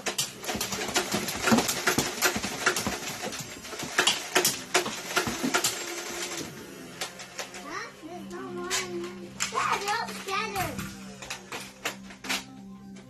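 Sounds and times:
foam darts clacking on plastic targets: 0.0 - 6.0.

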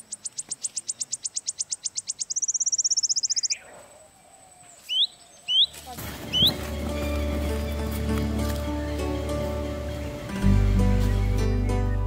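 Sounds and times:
fast high chirps: 0.0 - 3.6
faint high insect hum: 0.0 - 6.7.

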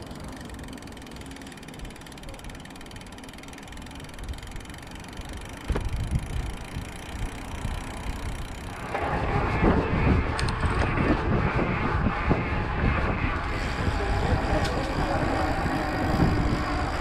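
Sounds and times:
low rumble of bike tyres: 0.0 - 17.0
rushing air: 8.7 - 17.0.

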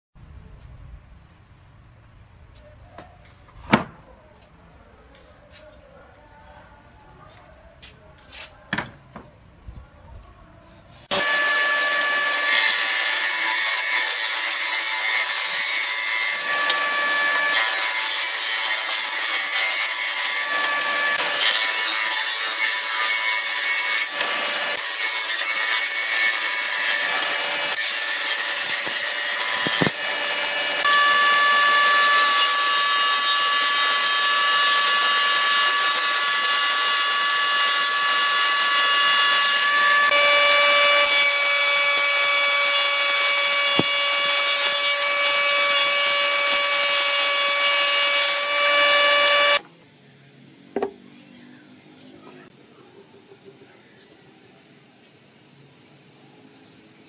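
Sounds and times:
planer machine whine: 11.1 - 13.8, 16.2 - 17.9, 19.5 - 22.1, 24.0 - 25.8, 26.4 - 49.6.

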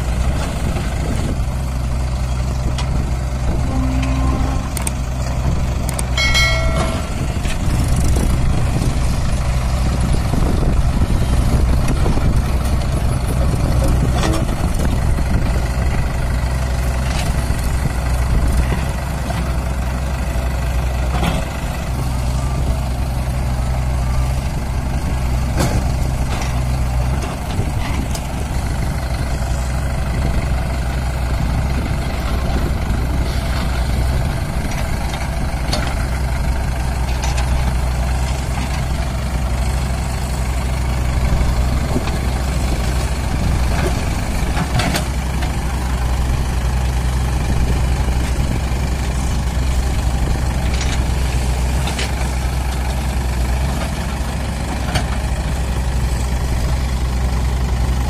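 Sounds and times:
backhoe loader working: 0.0 - 58.0
tractor diesel engine idling: 0.0 - 58.0.

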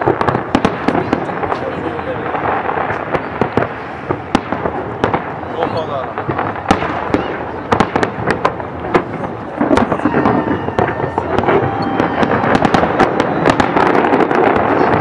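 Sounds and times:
firework crackling: 0.0 - 15.0
firework shells bursting: 6.2 - 15.0.

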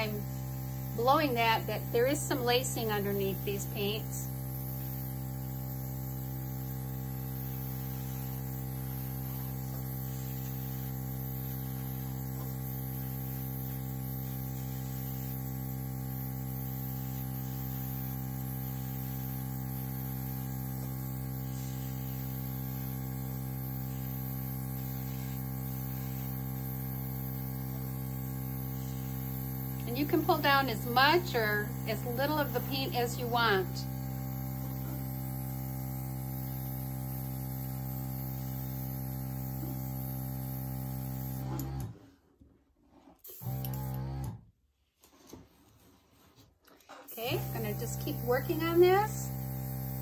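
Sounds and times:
air hissing from nozzle: 0.0 - 33.6, 47.3 - 50.0
air compressor humming: 0.0 - 42.2, 43.2 - 44.3, 47.1 - 50.0.

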